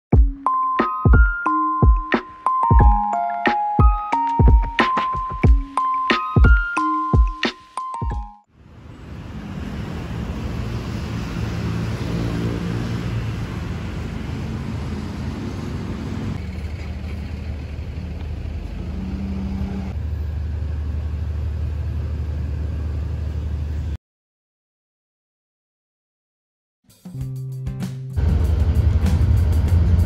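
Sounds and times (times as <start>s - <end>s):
road traffic hum: 8.5s - 24.0s, 28.2s - 30.0s.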